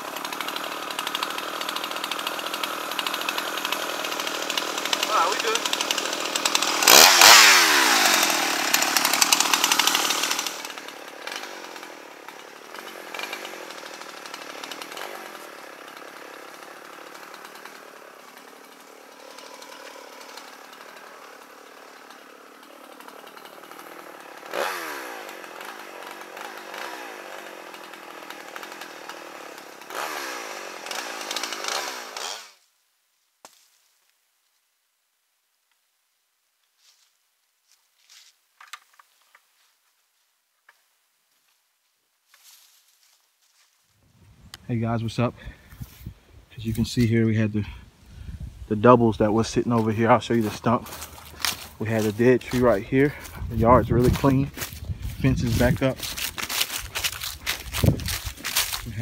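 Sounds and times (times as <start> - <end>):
chainsaw running: 0.0 - 32.6, 44.5 - 59.0.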